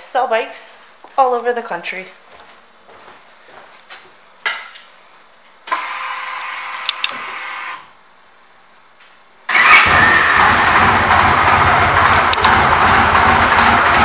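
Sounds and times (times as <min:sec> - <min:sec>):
electric starter whirring: 0:05.7 - 0:07.9, 0:09.5 - 0:14.0
motorcycle engine running: 0:09.5 - 0:14.0.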